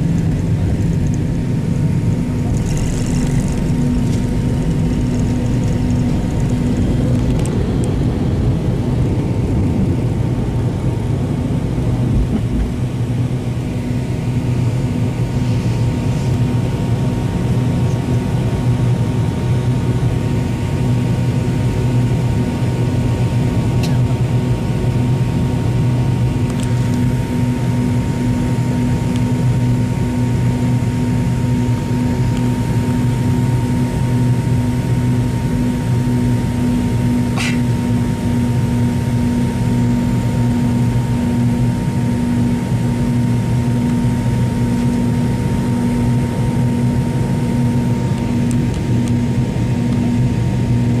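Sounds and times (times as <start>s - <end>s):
thin steady whine: 0.0s - 9.9s
airliner cabin engine drone: 0.0s - 51.0s.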